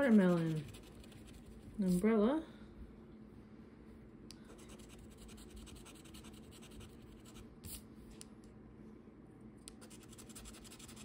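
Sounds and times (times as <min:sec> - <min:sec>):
scratching a scratch-off ticket: 0:00.0 - 0:01.5.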